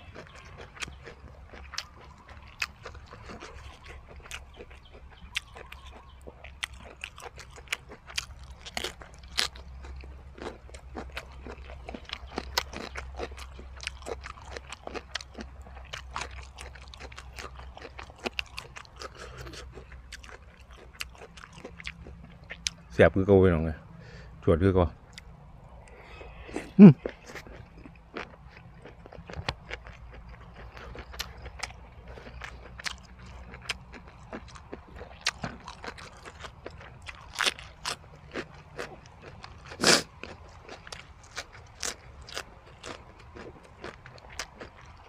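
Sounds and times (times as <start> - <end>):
crunchy chewing: 0.0 - 22.9, 24.9 - 45.0.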